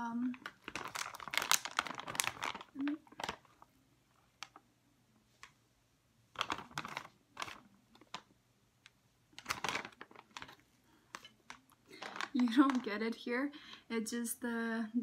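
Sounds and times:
plastic snack packet crinkling: 0.2s - 4.6s, 6.3s - 8.4s, 9.3s - 13.3s.

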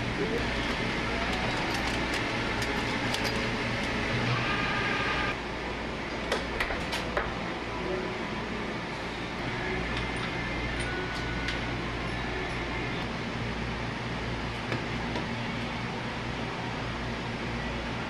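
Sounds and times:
machine-shop hum: 0.0s - 18.0s
tools clinking in drawer: 0.4s - 4.0s.

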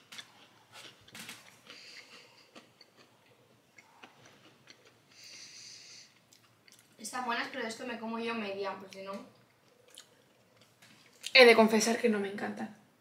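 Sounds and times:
cookie chewing: 0.0s - 7.0s, 8.8s - 11.4s
breath through nose: 1.6s - 2.5s, 5.1s - 6.2s.

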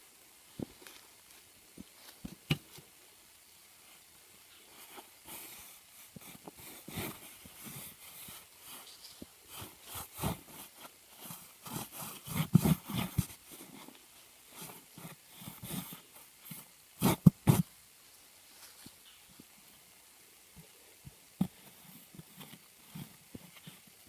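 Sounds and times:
hands brushing soil on board: 4.7s - 17.7s.

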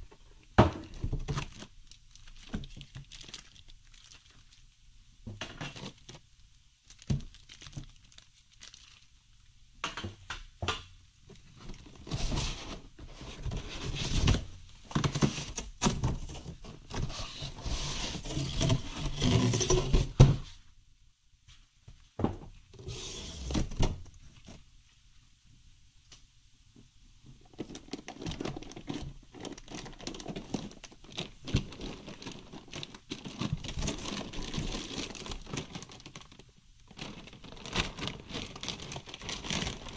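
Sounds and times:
plastic bag crinkling and rustling: 0.7s - 9.4s, 11.3s - 20.6s, 27.4s - 39.9s.

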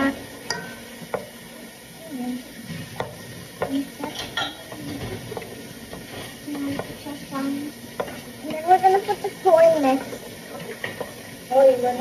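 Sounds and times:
wooden spoon stirring soup: 0.1s - 12.0s
spoon knocking and scraping pot: 0.5s - 1.4s, 2.7s - 11.4s.

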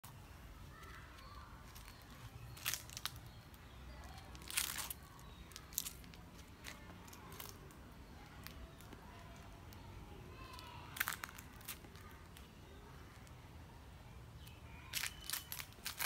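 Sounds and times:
low outdoor background: 0.0s - 16.0s
dry leaves crunching underfoot: 1.6s - 7.6s, 10.6s - 12.1s, 14.9s - 16.0s.

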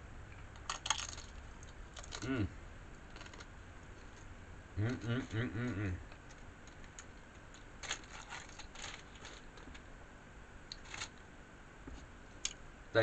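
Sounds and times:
plastic tray crinkling: 6.1s - 9.9s, 10.7s - 11.2s.

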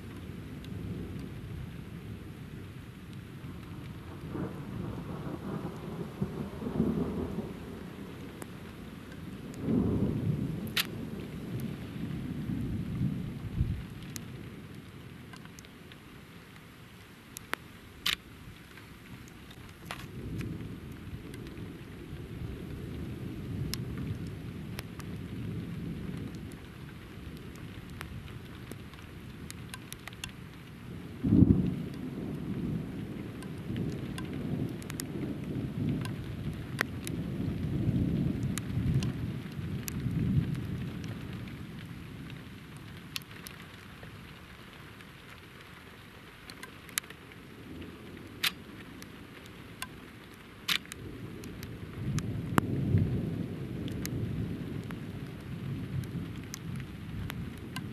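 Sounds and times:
raindrops ticking: 2.9s - 57.9s
thunder clap and rumble: 3.6s - 15.5s, 19.8s - 30.2s, 31.0s - 43.6s, 50.9s - 57.9s.

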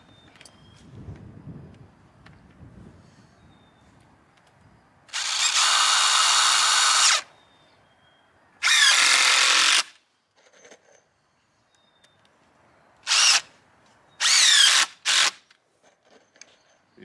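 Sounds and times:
cordless drill driving a screw: 5.1s - 7.3s, 8.6s - 10.0s, 13.1s - 13.5s, 14.2s - 15.4s.

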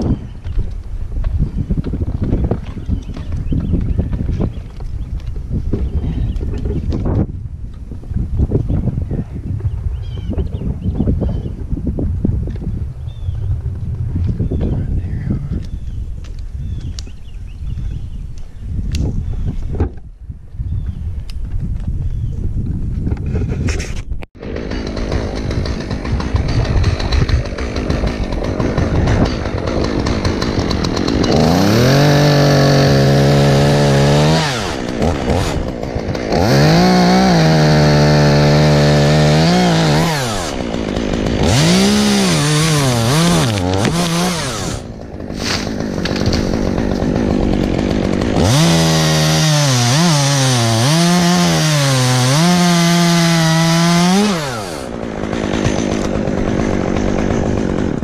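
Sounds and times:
chainsaw revving and cutting wood: 24.4s - 58.0s.

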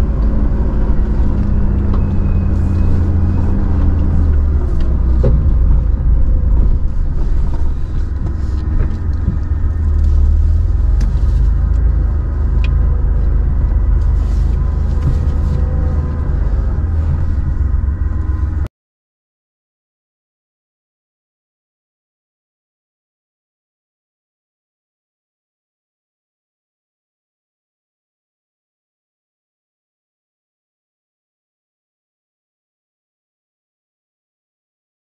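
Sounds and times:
engine and tyre rumble: 0.0s - 18.7s.

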